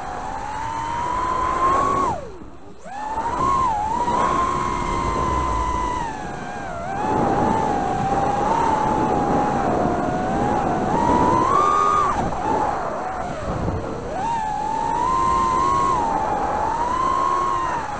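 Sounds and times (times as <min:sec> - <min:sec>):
drone motors whining: 0:00.0 - 0:17.9
rush of air: 0:03.3 - 0:06.4.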